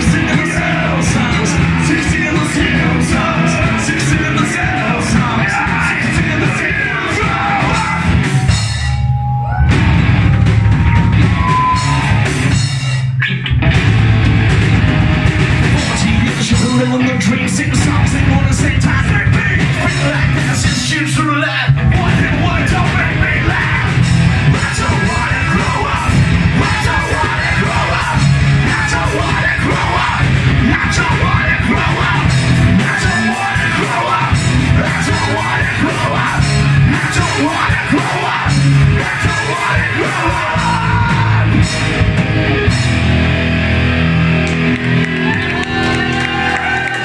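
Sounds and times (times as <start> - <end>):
singer yelling vocals: 0.0 - 9.7, 15.8 - 41.8
bass guitar: 0.0 - 47.0
drums: 0.0 - 47.0
electric guitars: 0.0 - 47.0.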